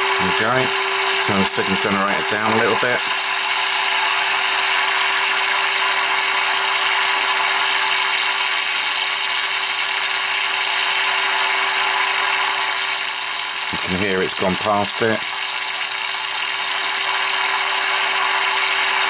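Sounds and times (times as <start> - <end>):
radio loudspeaker hiss: 0.0 - 3.2, 13.7 - 15.3.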